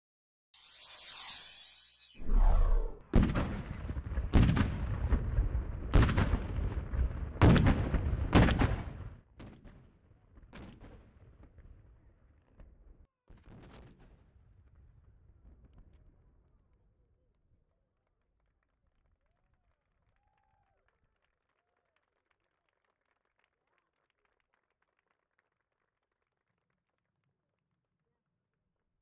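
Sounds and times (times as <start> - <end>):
cannon booms: 3.1 - 6.7.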